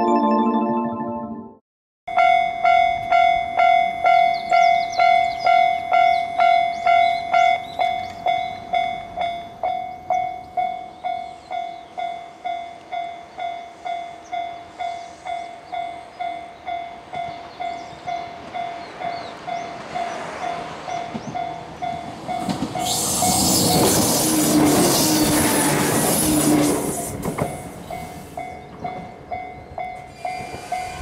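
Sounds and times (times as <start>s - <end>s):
level crossing bell ringing: 0.0s - 1.6s
electric train rumble: 17.0s - 31.0s.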